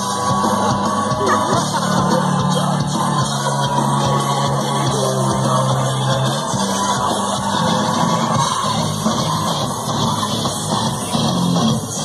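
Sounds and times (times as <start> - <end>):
dance music with singing: 0.0 - 12.0.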